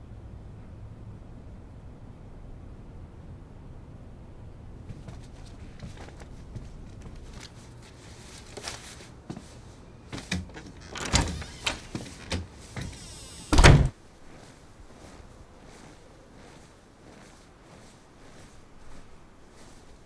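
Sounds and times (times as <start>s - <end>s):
door shutting thud: 10.2s - 13.9s
door knob and lock clicks: 10.8s - 13.9s.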